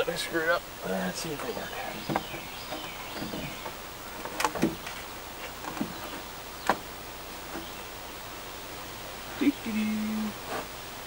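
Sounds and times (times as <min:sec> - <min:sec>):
wooden board knocks and clunks: 0:01.4 - 0:06.9.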